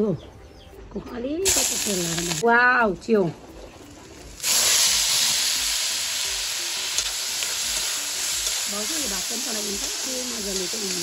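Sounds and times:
greens sizzling in hot oil: 1.4s - 2.8s, 3.6s - 11.0s.

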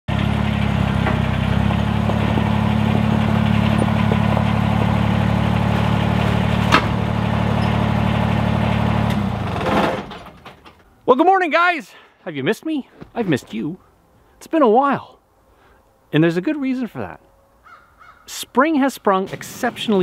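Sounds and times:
tractor engine running: 0.1s - 11.0s.

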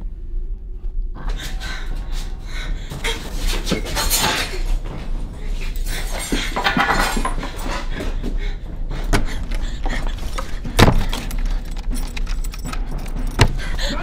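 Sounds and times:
door handle and lock rattling: 9.1s - 13.9s.

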